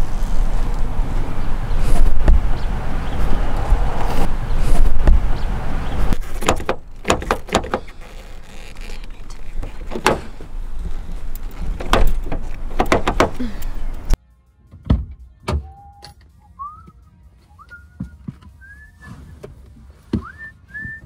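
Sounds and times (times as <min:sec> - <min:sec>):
car door handle clicks and knocks: 0:06.4 - 0:07.9, 0:09.8 - 0:10.5, 0:11.6 - 0:13.5.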